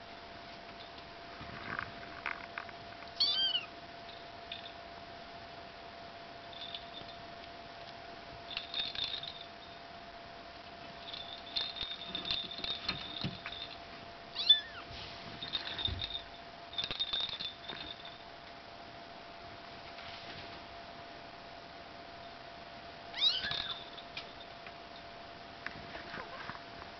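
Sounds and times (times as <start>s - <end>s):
kittens mewing: 14.4s - 14.9s, 23.2s - 23.8s.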